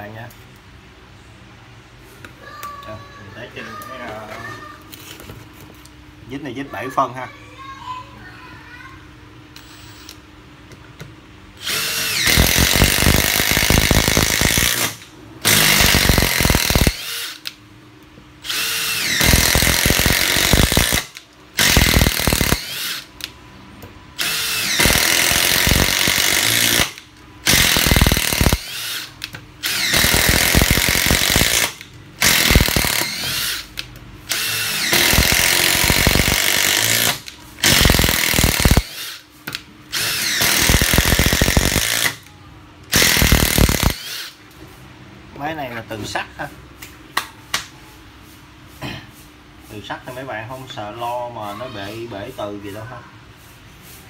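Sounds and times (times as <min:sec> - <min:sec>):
impact driver hammering screws: 0:11.6 - 0:17.5, 0:18.5 - 0:23.1, 0:24.2 - 0:33.6, 0:34.3 - 0:39.2, 0:39.9 - 0:42.2, 0:42.9 - 0:44.3.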